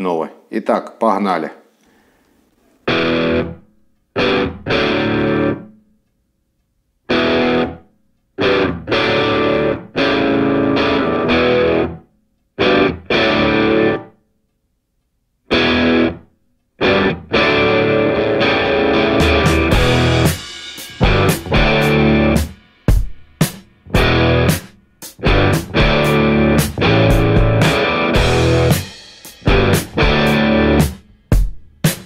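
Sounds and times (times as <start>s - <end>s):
distorted electric guitar chords: 2.9s - 3.6s, 4.2s - 5.7s, 7.1s - 7.8s, 8.4s - 12.0s, 12.6s - 14.1s, 15.5s - 16.2s, 16.8s - 22.6s, 23.8s - 32.0s.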